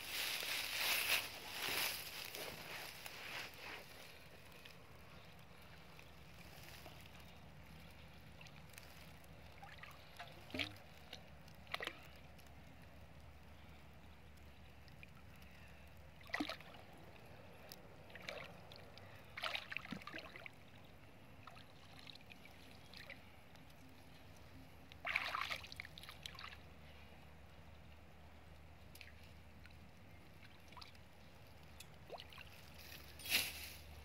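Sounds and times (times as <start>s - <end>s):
water sloshing and splashing: 7.9s - 12.5s, 16.2s - 17.3s, 18.0s - 20.8s, 21.4s - 23.3s, 24.9s - 26.7s, 31.9s - 33.2s.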